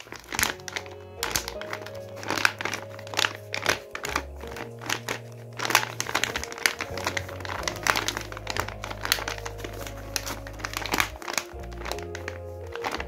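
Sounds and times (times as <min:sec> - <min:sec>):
background music with low notes: 0:00.0 - 0:13.0
paper bag crinkling: 0:00.0 - 0:13.0.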